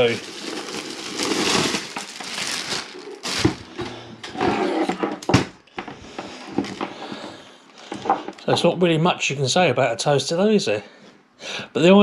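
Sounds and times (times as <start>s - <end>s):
plastic wrapping rustling: 0.0s - 5.5s, 6.5s - 7.1s.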